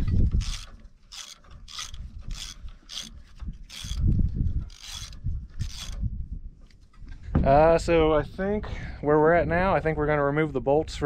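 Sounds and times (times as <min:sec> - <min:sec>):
socket ratchet clicking: 0:00.4 - 0:06.0.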